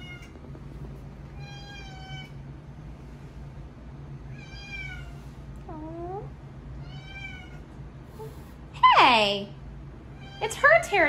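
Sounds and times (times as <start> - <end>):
cats meowing: 4.3 - 7.7.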